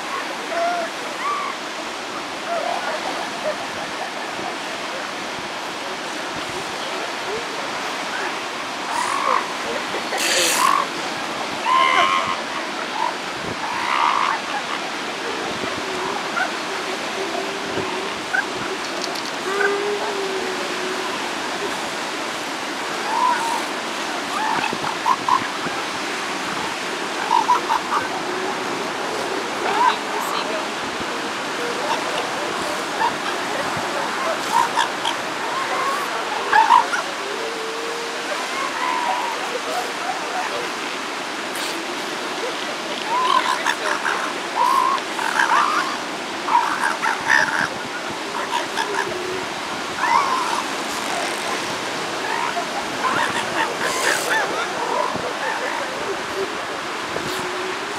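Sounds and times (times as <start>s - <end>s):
ocean surf washing on beach: 0.0s - 57.9s
seal pups yelping: 11.6s - 14.9s, 31.6s - 40.6s, 43.0s - 56.4s.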